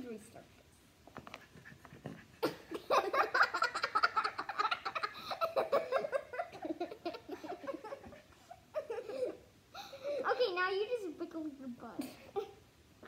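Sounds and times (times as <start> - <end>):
girls giggling: 2.2 - 10.2.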